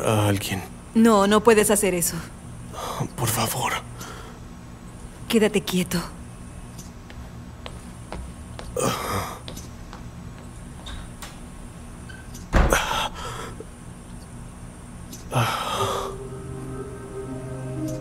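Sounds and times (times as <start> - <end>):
low steady hum: 0.0 - 18.0
man breathing through oxygen mask: 15.3 - 16.2.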